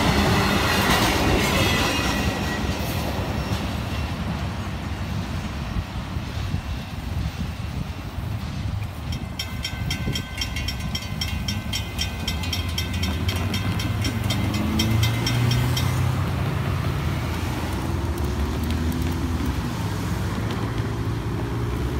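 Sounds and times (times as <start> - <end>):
railroad crossing bell ringing: 8.9 - 17.7
cars driving over crossing: 10.0 - 21.9.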